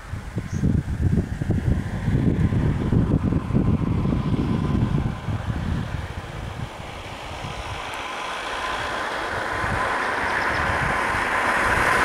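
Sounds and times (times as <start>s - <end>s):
vehicle approaching on road: 0.0s - 12.0s
wind rumble on microphone: 0.0s - 12.0s.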